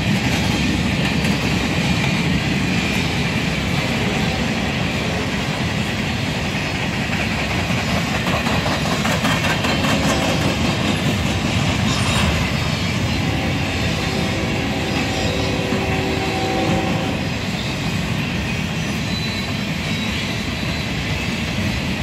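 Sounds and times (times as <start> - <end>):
freight train rolling past: 0.0 - 22.0
steel wheels clicking on rails: 0.0 - 22.0.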